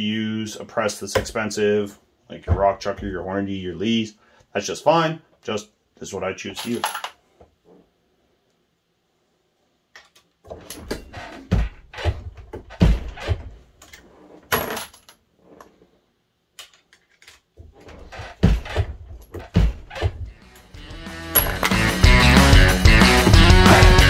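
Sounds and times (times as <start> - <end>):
metal cases clinking: 20.3 - 21.8.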